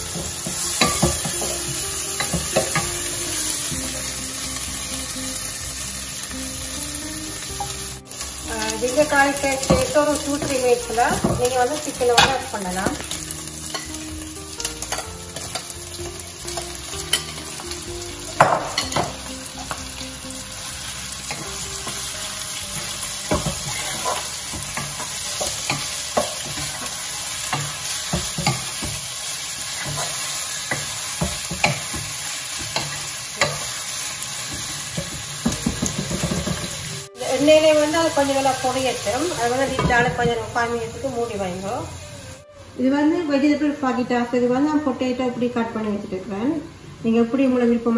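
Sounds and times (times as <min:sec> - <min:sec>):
food sizzling in oil: 0:00.0 - 0:42.6
spoon clattering: 0:00.2 - 0:03.0
wooden spoon scraping a pot: 0:22.8 - 0:26.9.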